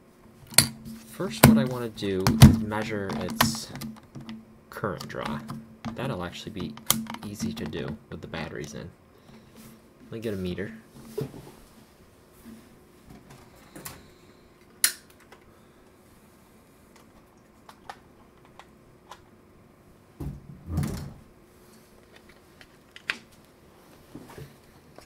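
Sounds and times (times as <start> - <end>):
objects clicking and knocking: 5.0 - 8.0.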